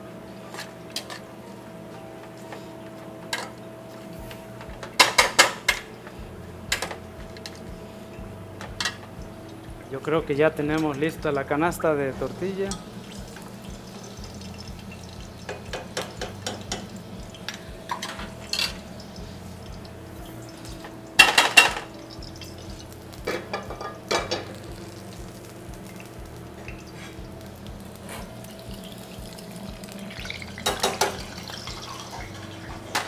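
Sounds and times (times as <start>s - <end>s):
steady low hum: 0.0s - 33.0s
metal utensils clattering on pots: 0.5s - 1.2s, 3.2s - 3.6s, 4.6s - 5.9s, 8.6s - 9.0s, 12.3s - 22.6s, 23.2s - 25.2s, 26.6s - 33.0s.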